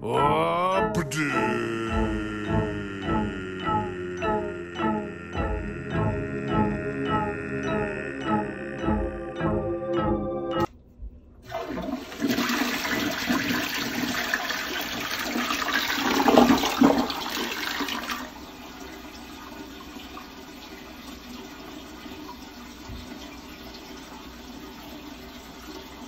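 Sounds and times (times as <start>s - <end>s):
toilet flushing: 11.4s - 26.0s
toilet refilling with water: 11.4s - 26.0s.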